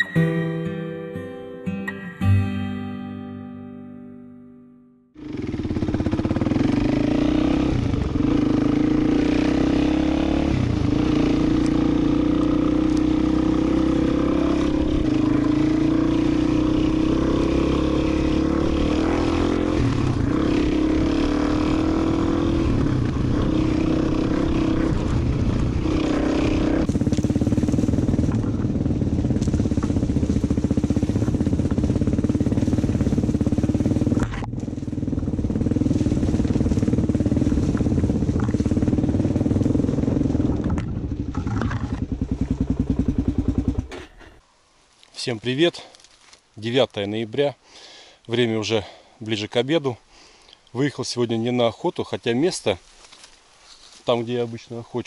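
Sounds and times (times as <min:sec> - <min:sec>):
dirt bike engine revving: 0:05.2 - 0:44.4.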